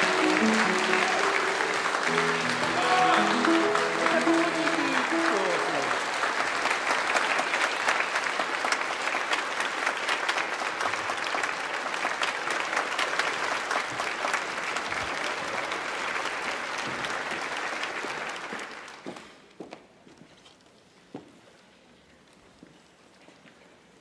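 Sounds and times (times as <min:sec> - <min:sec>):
audience applauding: 0:00.0 - 0:19.5.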